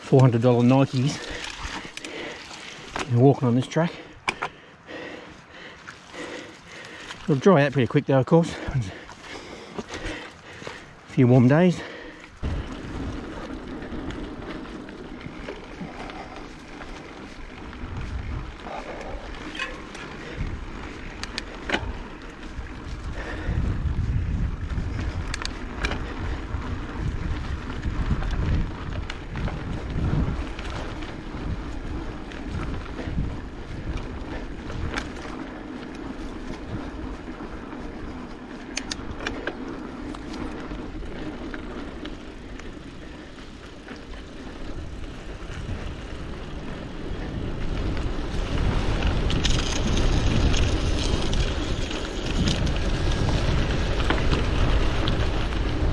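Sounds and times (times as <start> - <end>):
bike rattles and clicks: 0.0 - 55.9
bike tyre noise on dirt: 0.0 - 55.9
wind on the microphone: 11.5 - 55.9.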